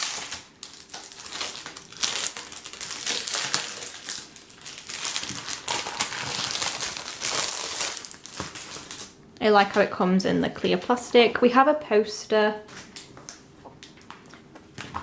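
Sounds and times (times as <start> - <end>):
plastic sleeve crinkling: 0.0 - 9.9.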